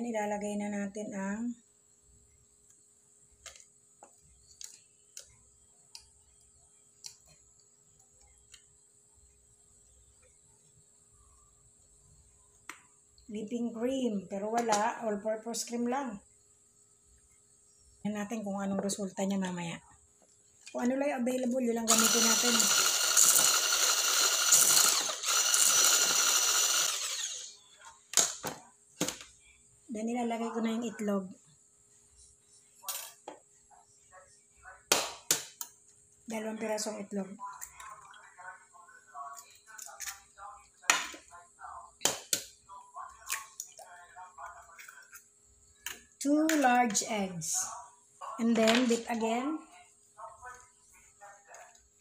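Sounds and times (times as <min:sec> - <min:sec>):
electric hand mixer running: 0:21.9 - 0:27.6.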